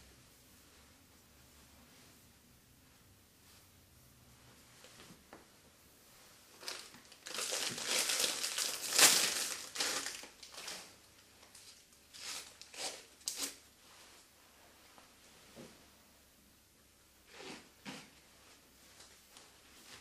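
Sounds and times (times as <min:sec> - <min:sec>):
packaging crinkling: 0:06.6 - 0:13.6.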